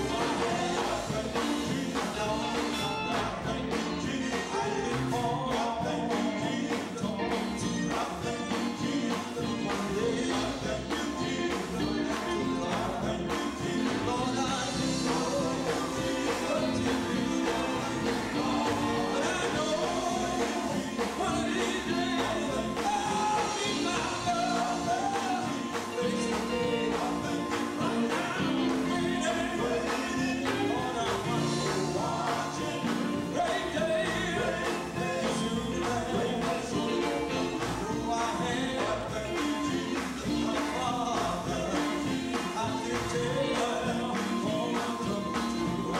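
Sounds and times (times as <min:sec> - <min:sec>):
drums playing steady beat: 0:00.0 - 0:45.9
electric guitar: 0:00.0 - 0:45.9
male vocal group singing gospel: 0:00.0 - 0:45.9.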